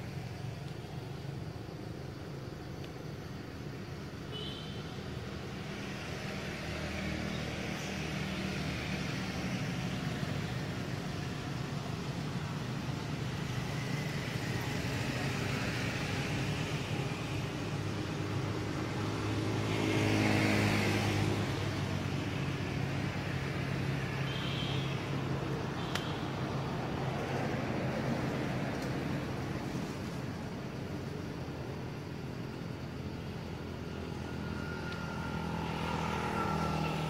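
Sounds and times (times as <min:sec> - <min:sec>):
traffic engine hum: 0:00.0 - 0:37.0
vehicle passing: 0:18.4 - 0:24.3, 0:33.1 - 0:37.0.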